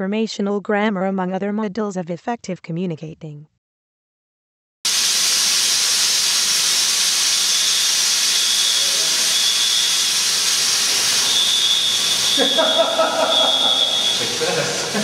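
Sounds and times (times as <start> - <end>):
smoke machine hissing: 4.9 - 15.0
faint high whistle: 7.3 - 14.4.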